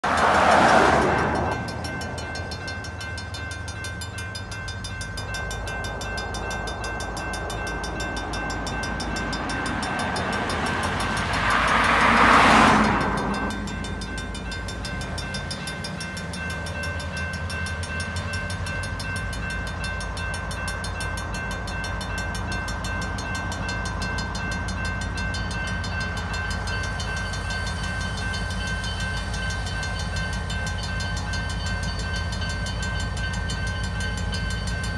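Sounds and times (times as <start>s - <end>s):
vehicles driving on wet road: 0.0s - 2.4s, 8.2s - 15.5s
crossing bell ringing: 0.0s - 34.9s
low diesel locomotive rumble: 0.0s - 34.9s.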